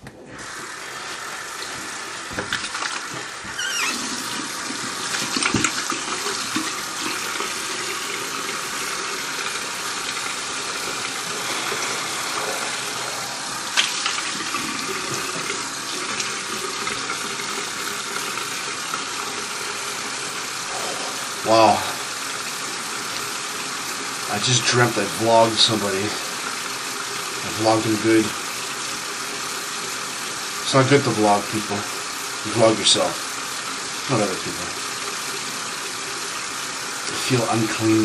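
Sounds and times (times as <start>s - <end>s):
hands washing with splashes: 0.0s - 18.6s
tap running into a sink: 1.6s - 19.6s.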